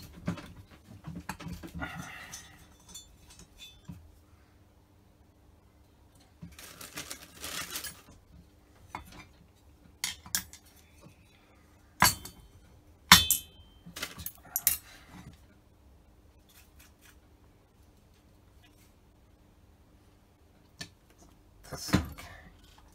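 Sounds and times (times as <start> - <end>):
metal parts clinking on workbench: 13.1 - 14.9.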